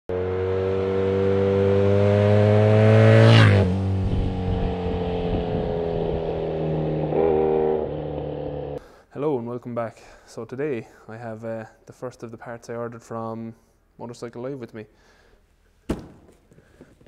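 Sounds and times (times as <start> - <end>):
motorcycle accelerating past: 0.1 - 8.8.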